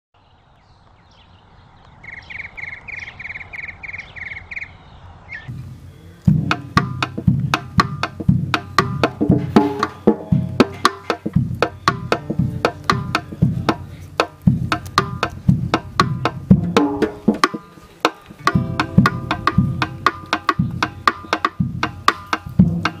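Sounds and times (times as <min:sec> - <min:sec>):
cross-stick clicks and drum strokes: 0:05.5 - 0:23.0
high-pitched pulses: 0:18.4 - 0:21.8.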